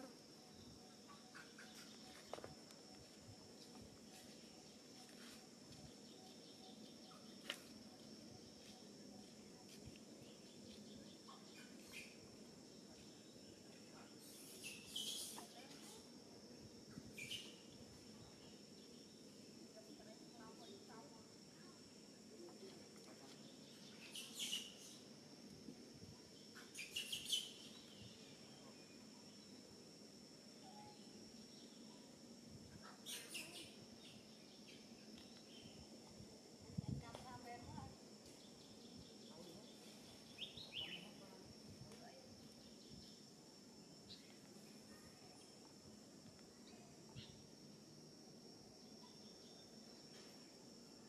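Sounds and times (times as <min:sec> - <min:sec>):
faint high whine: 0:00.0 - 0:51.0
insects droning: 0:00.0 - 0:51.0
high-pitched chirping calls: 0:14.3 - 0:15.6.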